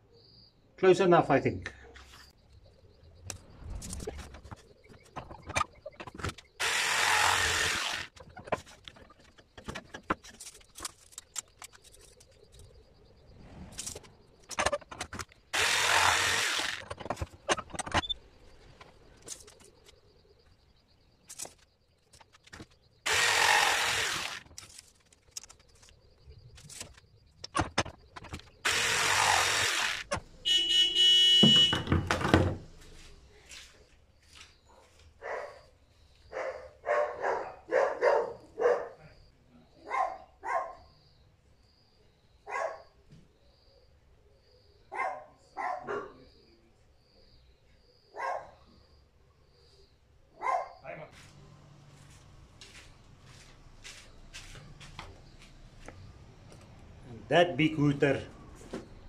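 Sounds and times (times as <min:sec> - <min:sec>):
vehicle horn hooting: 0:30.4 - 0:32.0.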